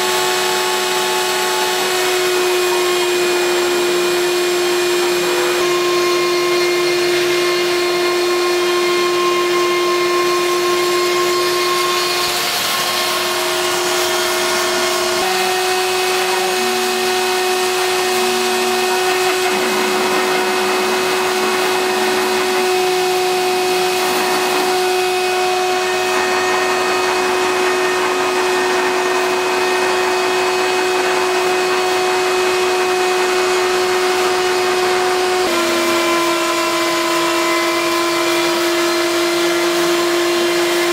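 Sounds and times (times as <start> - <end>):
milling machine spindle humming: 0.0 - 40.9.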